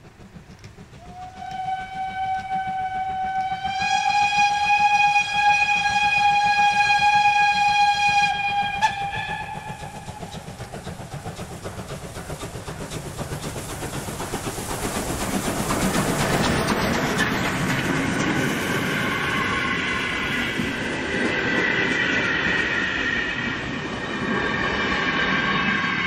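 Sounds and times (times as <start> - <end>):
locomotive exhaust beats: 0.0 - 20.8
train rumble: 0.0 - 26.0
steam locomotive whistle: 1.0 - 10.7, 18.3 - 20.8, 21.4 - 26.0.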